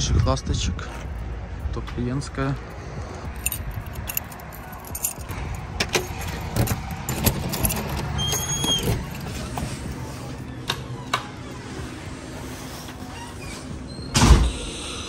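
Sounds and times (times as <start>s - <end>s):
keys and door lock clicking: 3.4s - 9.7s.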